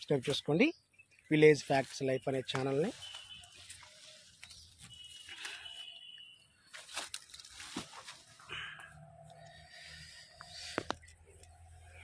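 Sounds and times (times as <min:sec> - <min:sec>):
leaves and twigs rustling: 0:01.2 - 0:08.7.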